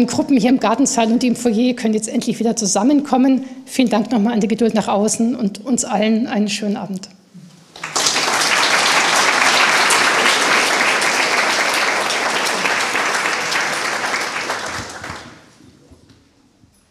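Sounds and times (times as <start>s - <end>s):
audience applauding: 7.7s - 15.5s.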